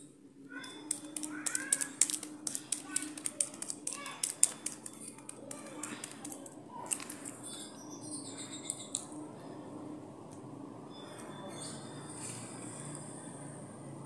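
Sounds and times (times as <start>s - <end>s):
steady low hum: 0.0s - 14.0s
toddler chewing: 0.6s - 7.4s.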